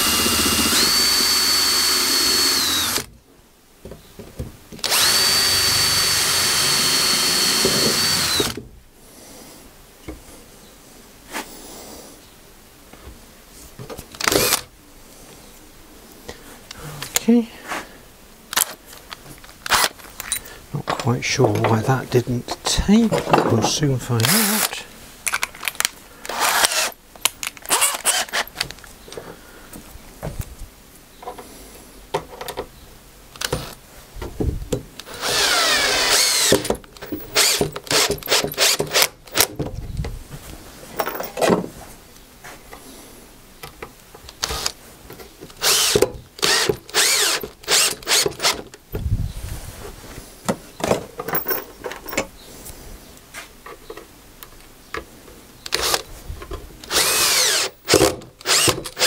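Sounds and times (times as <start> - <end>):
drill driving screws into wood: 0.0 - 3.1, 4.8 - 8.6, 14.2 - 14.7, 19.6 - 20.0, 24.2 - 24.7, 26.3 - 27.0, 27.7 - 28.7, 33.4 - 33.8, 35.0 - 39.6, 44.4 - 44.8, 45.5 - 48.7, 55.7 - 56.1, 56.8 - 59.0.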